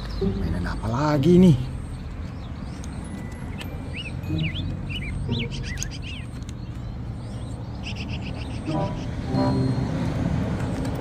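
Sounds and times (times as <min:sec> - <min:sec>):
bird chirping: 0:00.0 - 0:10.8.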